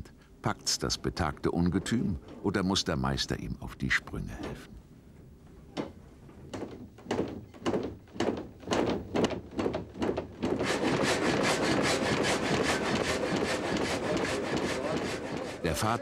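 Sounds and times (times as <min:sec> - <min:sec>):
sawmill machinery clattering: 0:00.6 - 0:03.3, 0:07.6 - 0:16.0.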